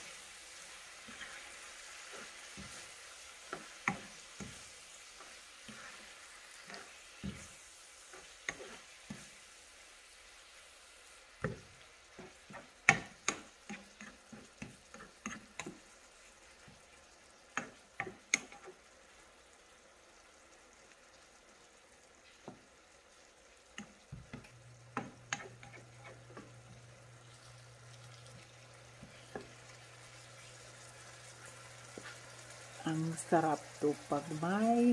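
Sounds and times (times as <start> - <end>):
faint sizzle: 0.0 - 34.9
spoon scraping a frying pan: 0.9 - 9.4, 11.4 - 15.9, 23.8 - 26.8, 28.2 - 32.7.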